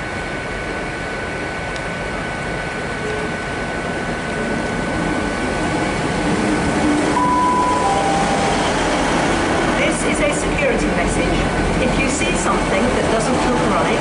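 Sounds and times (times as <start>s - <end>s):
diesel train engine and wheels: 0.0s - 14.0s
brief high tone: 7.2s - 9.7s.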